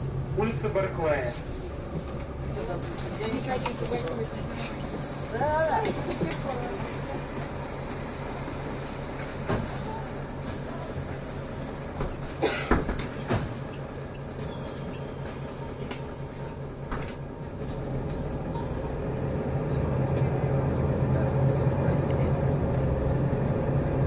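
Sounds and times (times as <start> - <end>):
bus engine and road hum: 0.0 - 24.0
short high squeaks: 3.2 - 5.4, 11.2 - 16.6
clunks: 11.6 - 18.9.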